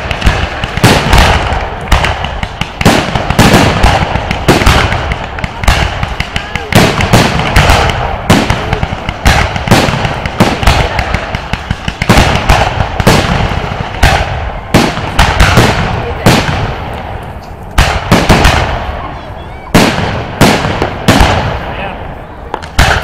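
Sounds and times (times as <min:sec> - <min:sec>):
fireworks bangs: 0:00.0 - 0:23.0.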